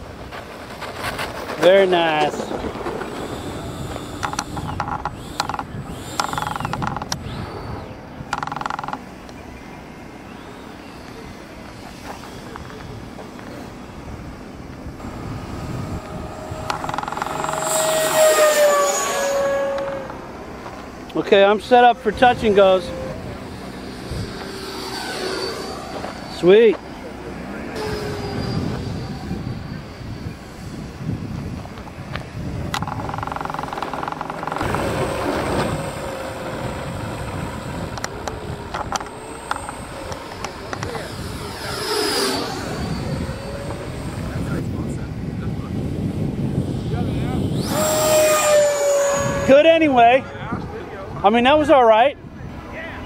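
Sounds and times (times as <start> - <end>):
model jet fan whine passing: 0.0 - 53.0
sharp clicks: 3.3 - 7.4, 8.3 - 9.4, 16.0 - 17.9, 32.7 - 34.9.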